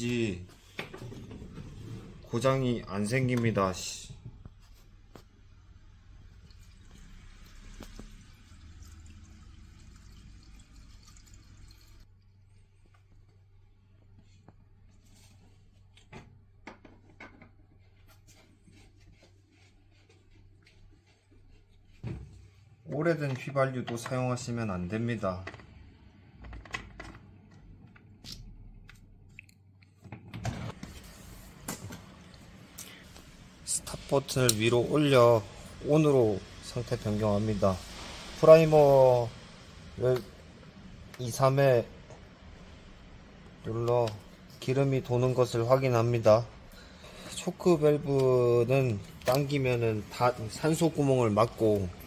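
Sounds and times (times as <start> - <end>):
fuel trickling into tank: 6.1 - 12.6.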